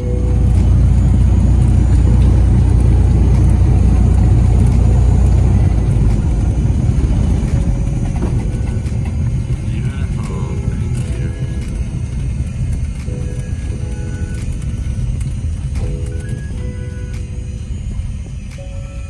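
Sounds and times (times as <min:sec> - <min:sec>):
light aircraft engine rumbling: 0:00.0 - 0:19.0.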